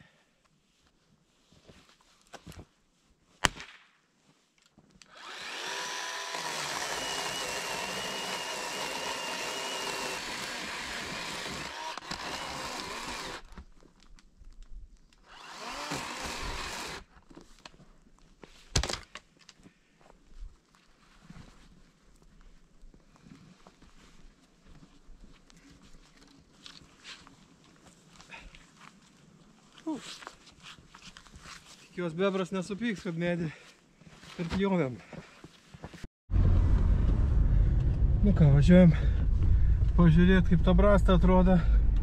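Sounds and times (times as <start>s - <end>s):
chainsaw cutting wood: 5.0s - 13.6s, 15.2s - 17.1s.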